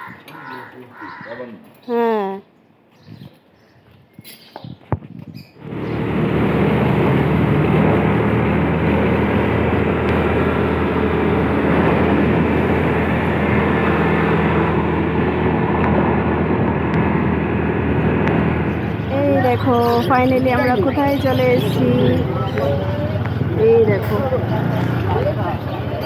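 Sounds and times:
road noise: 0:00.0 - 0:26.0
scooter engine drone: 0:05.6 - 0:26.0.

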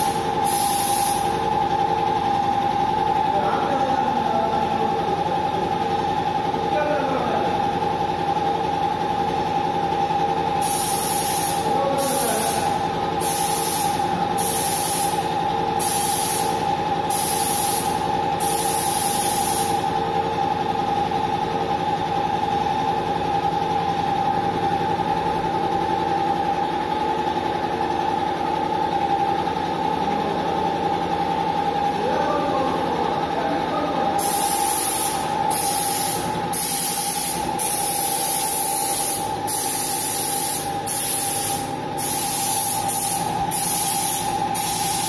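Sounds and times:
spray gun hissing: 0:00.0 - 0:01.4, 0:10.6 - 0:19.8, 0:34.2 - 0:45.0
compressor motor humming: 0:00.0 - 0:45.0.

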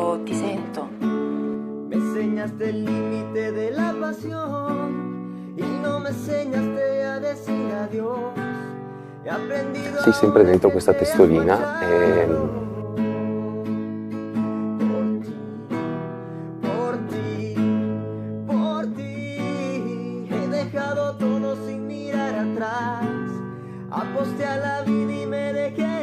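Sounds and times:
acoustic guitar picking: 0:00.0 - 0:26.0
person singing: 0:01.9 - 0:05.0, 0:05.6 - 0:14.0.

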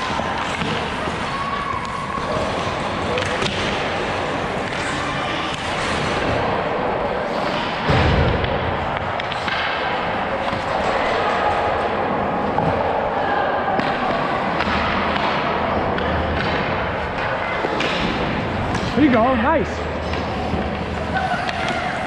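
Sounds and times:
skates scraping on ice: 0:00.0 - 0:07.8.

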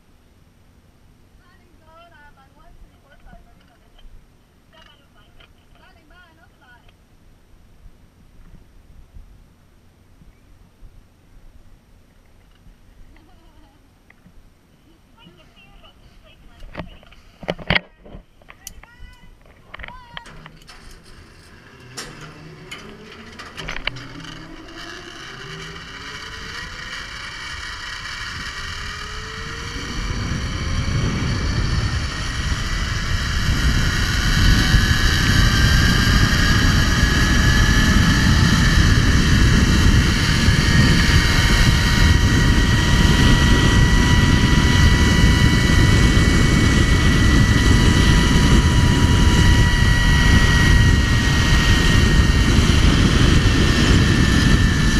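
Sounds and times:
wind rushing over microphone: 0:18.8 - 0:54.9
zip line trolley whine: 0:19.7 - 0:54.9.

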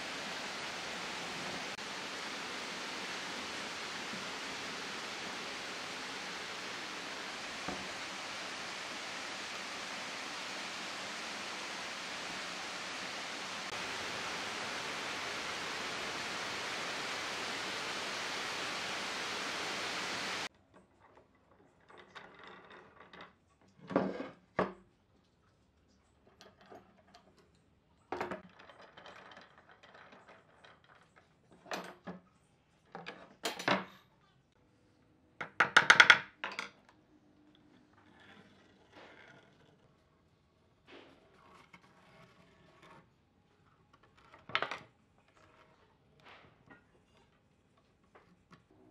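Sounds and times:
steady hiss: 0:00.0 - 0:20.5.

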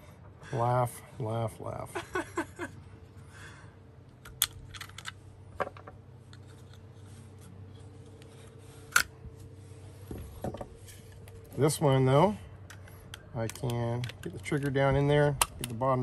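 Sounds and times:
pistol parts clicking and rattling: 0:04.1 - 0:06.9, 0:11.2 - 0:16.0.

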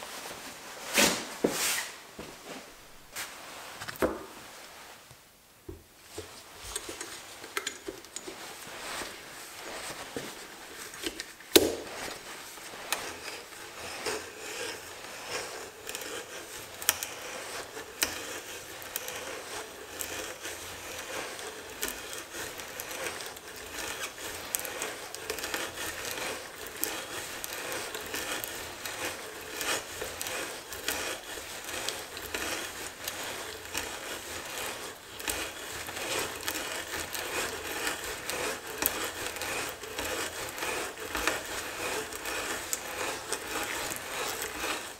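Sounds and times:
auger bit cutting wood: 0:10.9 - 0:12.2, 0:12.8 - 0:44.9.

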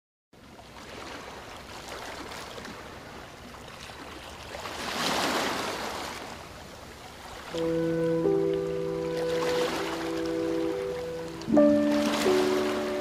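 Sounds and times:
ocean surf washing ashore: 0:04.6 - 0:13.0
wave breaking: 0:07.5 - 0:13.0.

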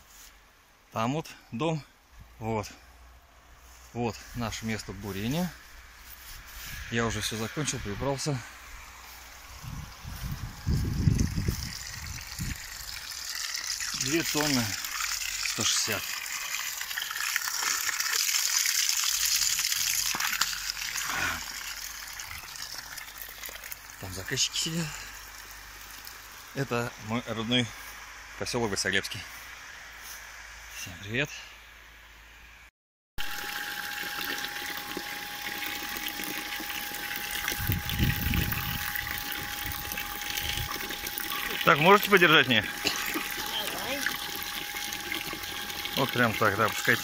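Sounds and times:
thin steady hum: 0:00.0 - 0:18.1, 0:18.7 - 0:47.0
water gushing and splashing: 0:09.0 - 0:26.6, 0:33.2 - 0:47.0.

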